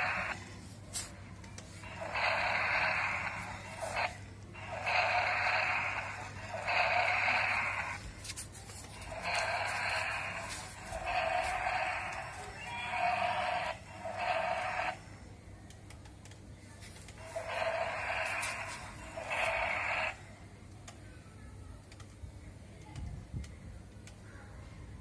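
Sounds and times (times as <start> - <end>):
toy dinosaur roar through speaker: 0.0 - 0.4, 1.9 - 8.0, 9.0 - 15.0, 17.3 - 20.2.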